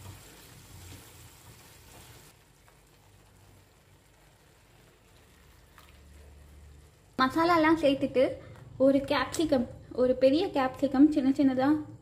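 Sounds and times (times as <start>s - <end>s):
curry sizzling in a frying pan: 0.0s - 7.6s.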